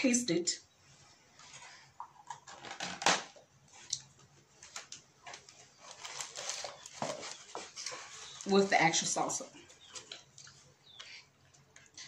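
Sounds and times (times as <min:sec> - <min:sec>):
paper wrapper rustling: 0:04.6 - 0:09.1.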